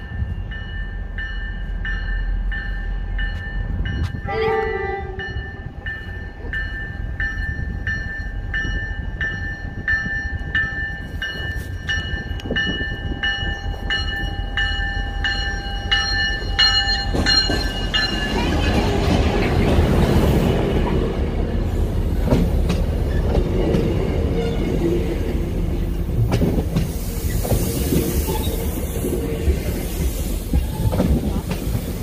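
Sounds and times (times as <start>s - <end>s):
locomotive bell ringing: 0.0s - 19.6s
short train horn: 4.2s - 5.4s.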